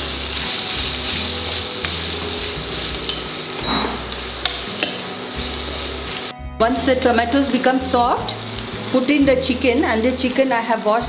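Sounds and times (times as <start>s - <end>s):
food sizzling in a pan: 0.0s - 11.0s
spoon clicking against pan: 4.4s - 5.0s.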